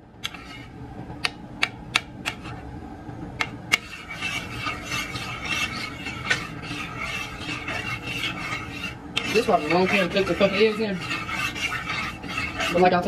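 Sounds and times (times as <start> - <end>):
spoon scraping eggs in pan: 0.2 - 2.7, 3.4 - 13.0.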